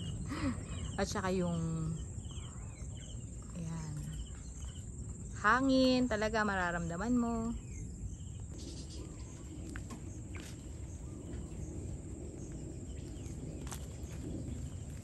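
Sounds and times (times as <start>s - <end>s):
insects chirring: 0.0s - 15.0s
low wind rumble: 0.0s - 15.0s.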